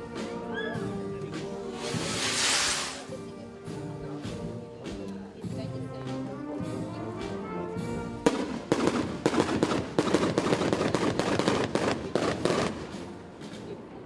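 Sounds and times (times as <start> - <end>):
brass band playing: 0.0 - 13.5
firecrackers crackling: 1.3 - 3.3, 8.1 - 13.8.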